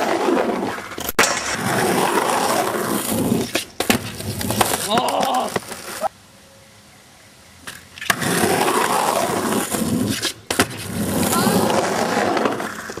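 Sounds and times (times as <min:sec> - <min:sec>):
skateboard wheels rolling on concrete: 0:00.0 - 0:06.2, 0:07.6 - 0:13.0
skateboard landing clack: 0:00.9 - 0:06.0.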